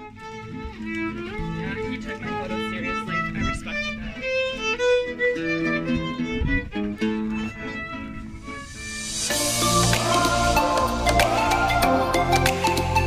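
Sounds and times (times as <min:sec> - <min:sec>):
guitar accompaniment: 0:00.0 - 0:13.0
violin melody: 0:00.0 - 0:13.0.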